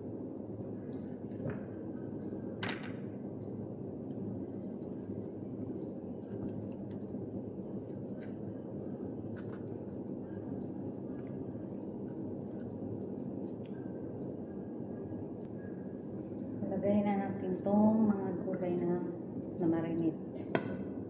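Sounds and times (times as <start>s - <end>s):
low background hum: 0.0s - 21.0s.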